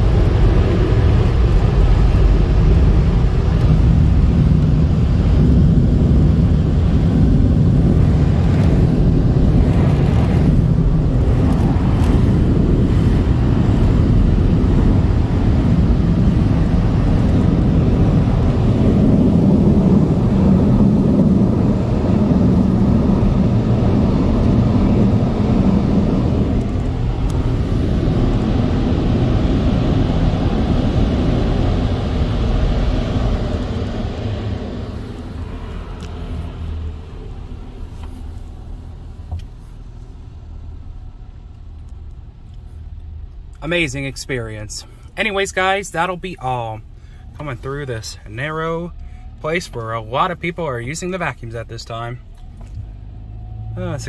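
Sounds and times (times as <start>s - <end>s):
dryer blowers rushing air: 0.0s - 40.6s
low motor hum: 0.0s - 43.6s.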